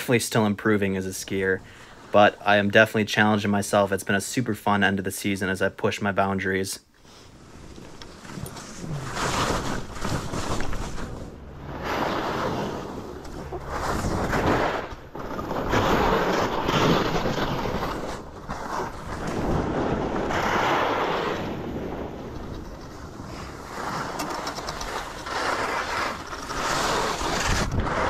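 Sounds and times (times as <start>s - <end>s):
skis scraping over snow: 7.1s - 28.0s
wind rushing over microphone: 8.8s - 24.2s, 27.0s - 28.0s.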